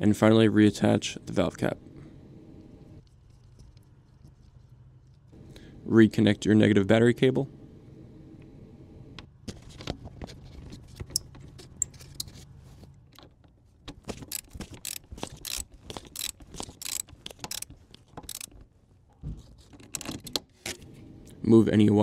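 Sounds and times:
socket ratchet clicking: 0:14.2 - 0:18.6.

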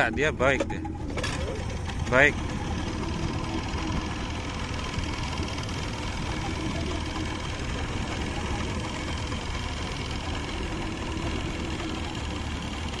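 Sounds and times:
boat engine running: 0:00.0 - 0:13.0.

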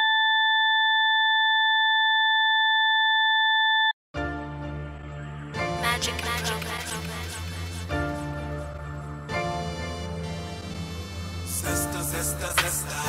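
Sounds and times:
low bass line music: 0:04.2 - 0:13.0.

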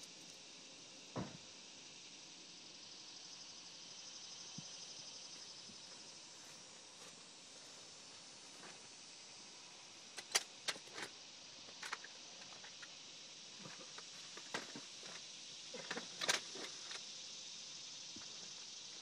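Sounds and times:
steady high hiss: 0:00.0 - 0:19.0.

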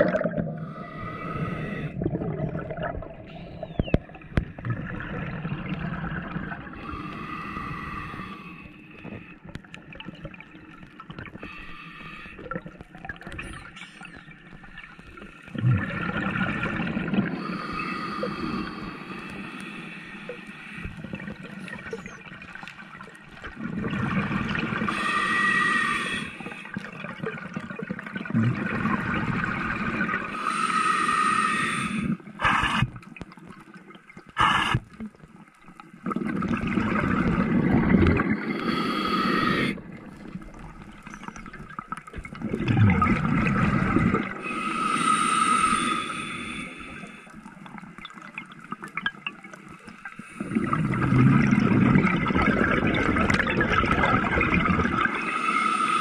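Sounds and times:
exhaled bubbles rushing: 0:00.0 - 0:08.4, 0:12.4 - 0:17.7, 0:21.0 - 0:25.3, 0:26.0 - 0:30.4, 0:36.0 - 0:44.6, 0:46.4 - 0:55.4
regulator inhale hiss: 0:00.6 - 0:02.0, 0:06.8 - 0:09.5, 0:11.4 - 0:12.4, 0:17.4 - 0:21.0, 0:24.9 - 0:26.8, 0:30.3 - 0:33.0, 0:34.4 - 0:34.9, 0:38.4 - 0:40.4, 0:44.4 - 0:47.5, 0:55.2 - 0:56.0.

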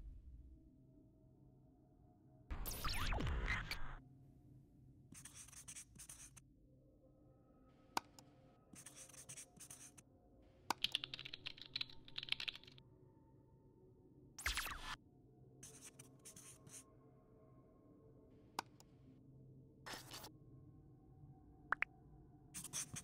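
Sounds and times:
marker scratching on hard surface: 0:05.2 - 0:06.4, 0:08.8 - 0:10.0, 0:15.6 - 0:16.8, 0:19.9 - 0:20.3, 0:22.6 - 0:23.0.

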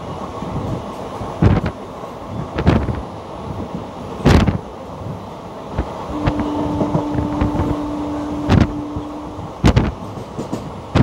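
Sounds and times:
train rumbling on track: 0:00.0 - 0:11.0
train wheel clacks: 0:05.8 - 0:11.0.

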